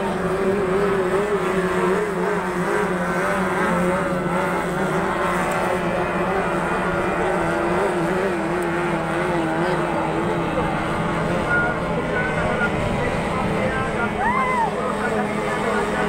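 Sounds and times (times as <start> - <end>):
motorboat engine droning: 0.0 - 16.0.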